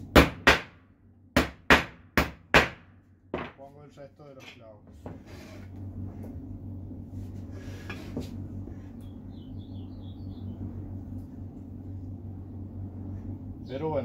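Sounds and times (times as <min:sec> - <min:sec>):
steady low hum: 0:00.0 - 0:14.0
wooden boards knocking: 0:01.4 - 0:03.6
bird chirping: 0:09.0 - 0:10.7.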